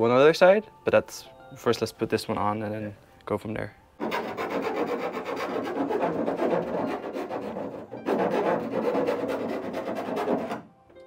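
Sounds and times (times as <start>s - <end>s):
hand sanding rasping strokes: 4.0s - 10.7s.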